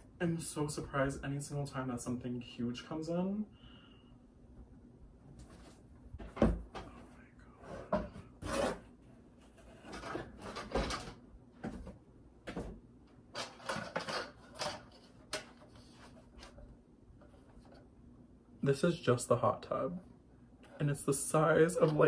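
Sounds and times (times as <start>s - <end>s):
plastic toy parts rustling and knocking: 13.3s - 16.6s.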